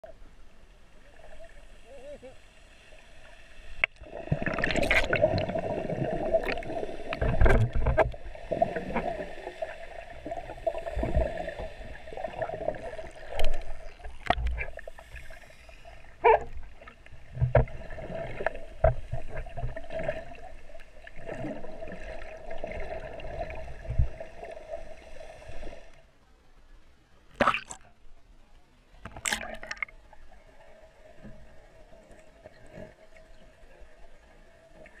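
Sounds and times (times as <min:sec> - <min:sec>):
muffled underwater sloshing: 0:03.7 - 0:26.0.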